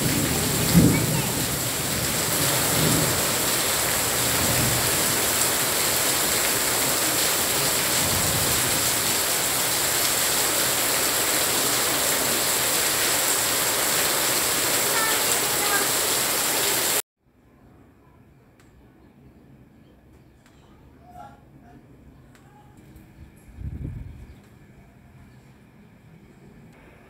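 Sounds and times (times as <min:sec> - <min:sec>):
heavy rain on street and leaves: 0:00.0 - 0:17.0.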